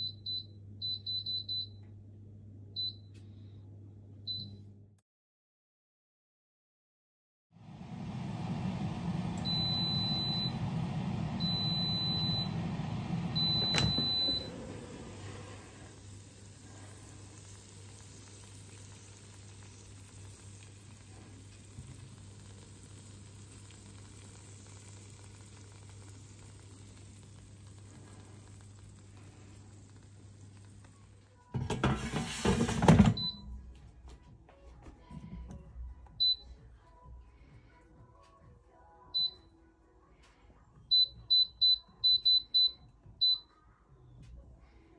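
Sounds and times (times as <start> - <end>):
air fryer running: 7.6 - 33.4
air fryer beeping: 7.9 - 30.9, 31.6 - 33.6, 40.9 - 43.5
air fryer basket clattering: 31.6 - 33.3.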